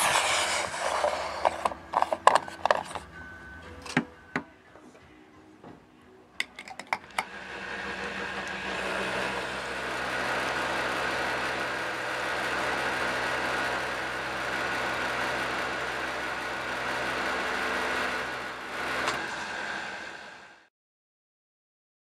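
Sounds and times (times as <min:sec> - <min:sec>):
fuel pump motor hum: 0:00.0 - 0:03.0, 0:07.0 - 0:20.4.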